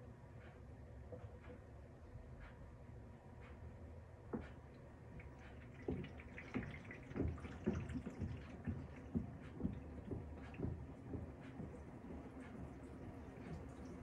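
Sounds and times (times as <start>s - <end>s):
washing machine rumbling: 4.4s - 14.0s
water dripping and splashing: 5.1s - 14.0s
soft irregular knocks: 5.5s - 13.8s.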